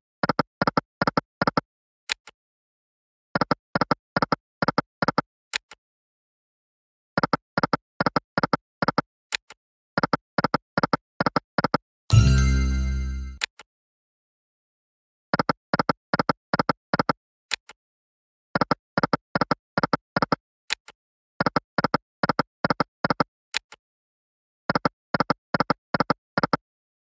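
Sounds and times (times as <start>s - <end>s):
win jingle: 12.1s - 13.4s.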